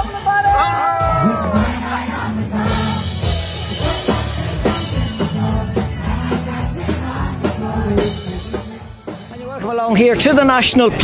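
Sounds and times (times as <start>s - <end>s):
live rock band playing: 0.0s - 11.0s
person singing: 0.9s - 2.1s.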